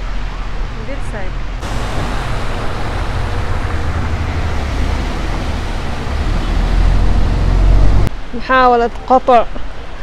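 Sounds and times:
heavy low rumble: 0:01.4 - 0:08.2
tyres splashing through water: 0:01.6 - 0:08.3.

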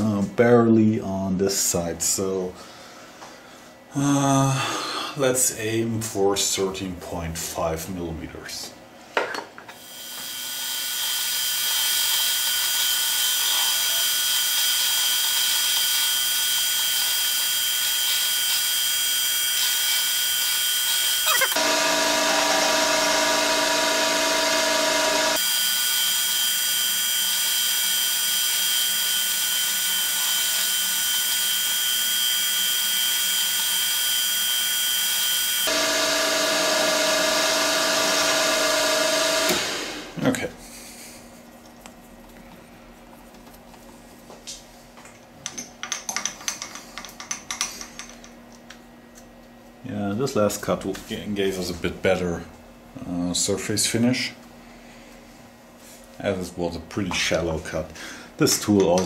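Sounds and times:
milling machine spindle running: 0:09.8 - 0:40.1.

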